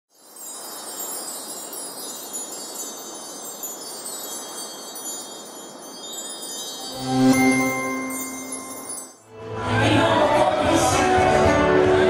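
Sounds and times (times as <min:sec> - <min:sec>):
shimmering chimes: 0:00.1 - 0:09.3
steady airy rush: 0:02.8 - 0:10.2.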